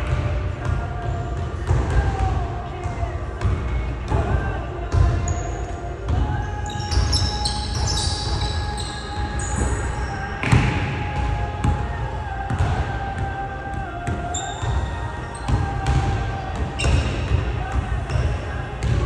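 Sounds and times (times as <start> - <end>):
basketball dribbled on hardwood floor: 0.0 - 5.2, 12.5 - 12.9, 15.5 - 19.0
sneaker squeaks: 1.0 - 12.4, 13.3 - 19.0.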